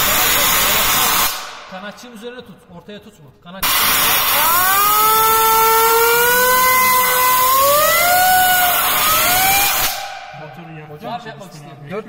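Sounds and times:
compressed air hissing: 0:03.6 - 0:04.5
turbocharger wheel whining: 0:03.7 - 0:10.1.

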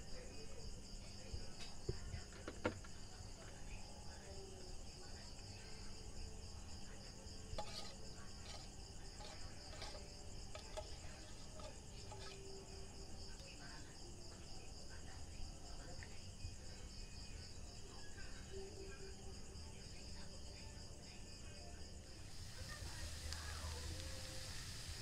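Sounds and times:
crickets chirping: 0:00.0 - 0:25.0
metal spoon scraping tin can: 0:07.6 - 0:12.5.

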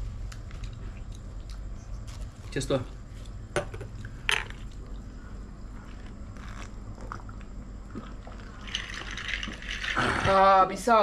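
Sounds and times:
glasses clinking: 0:08.6 - 0:10.0.

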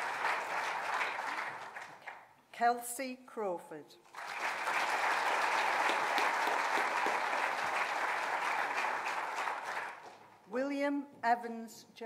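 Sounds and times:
audience applauding: 0:00.0 - 0:02.3, 0:04.1 - 0:10.3.

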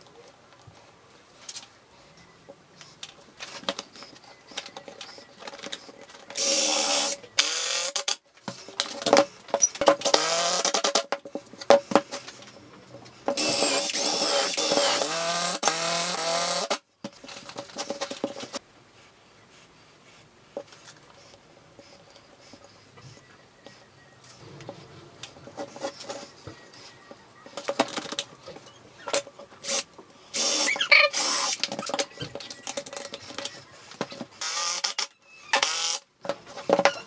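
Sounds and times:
cordless drill driving screws: 0:13.4 - 0:16.8, 0:29.7 - 0:31.7, 0:34.4 - 0:36.0.

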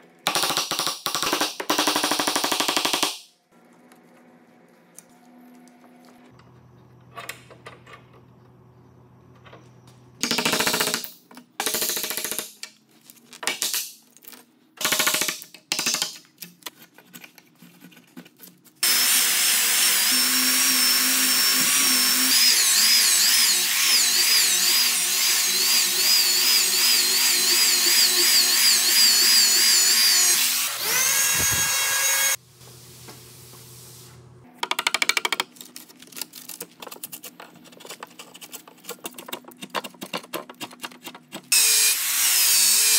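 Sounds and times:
rotary sander whining on wood: 0:18.8 - 0:32.4.

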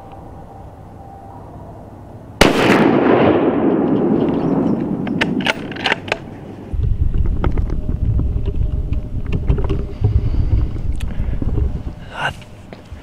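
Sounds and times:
wind rumbling on microphone: 0:01.3 - 0:13.0
gunshot echoing: 0:02.4 - 0:06.0.

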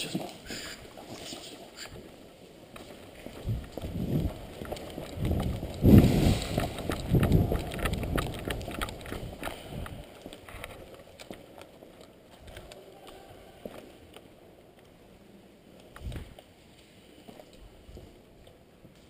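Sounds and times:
gear and clothing rattling: 0:00.0 - 0:12.9
quick footsteps on concrete: 0:00.1 - 0:15.0, 0:15.8 - 0:19.0.

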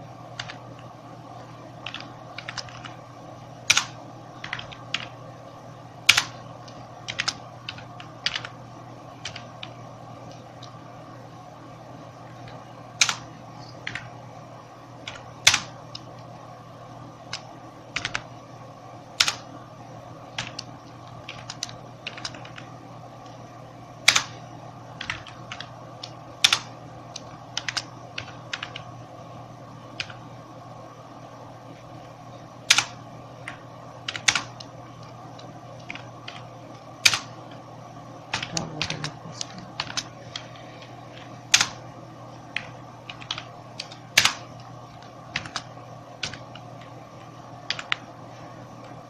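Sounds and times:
steady low hum: 0:00.0 - 0:49.0
computer keyboard keystrokes: 0:00.4 - 0:00.6, 0:01.8 - 0:03.0, 0:03.6 - 0:05.2, 0:06.0 - 0:08.6, 0:09.2 - 0:10.8, 0:12.4 - 0:14.1, 0:15.0 - 0:16.1, 0:17.3 - 0:18.3, 0:19.2 - 0:19.5, 0:20.3 - 0:23.4, 0:24.0 - 0:24.4, 0:25.0 - 0:28.9, 0:30.0 - 0:30.2, 0:32.7 - 0:37.6, 0:38.3 - 0:41.8, 0:42.5 - 0:48.1.

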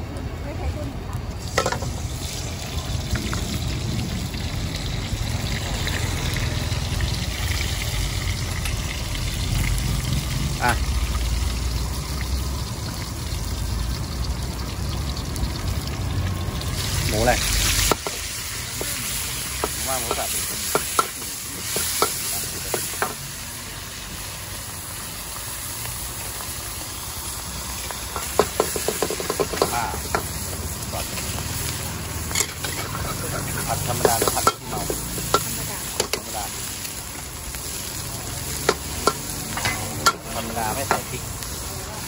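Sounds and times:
food sizzling in a wok: 0:00.0 - 0:42.0
metal spatula scraping wok: 0:32.2 - 0:36.4.

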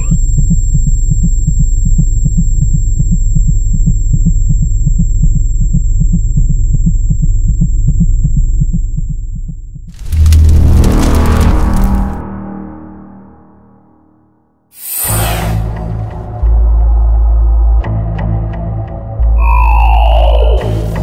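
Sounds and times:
pulsing electronic hum: 0:00.0 - 0:12.6, 0:19.2 - 0:21.0.

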